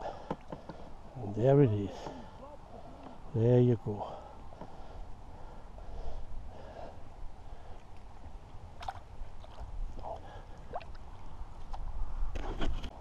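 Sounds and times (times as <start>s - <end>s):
wind rumble on microphone: 6.2s - 13.0s
water splashing and lapping: 7.7s - 11.9s.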